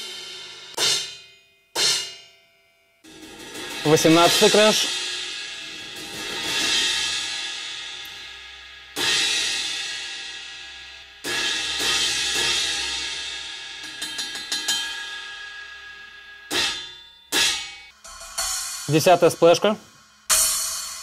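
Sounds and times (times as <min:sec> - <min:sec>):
crash cymbal struck with drumstick: 0:00.0 - 0:02.3, 0:03.0 - 0:21.0
light taps on cymbal: 0:08.0 - 0:09.3.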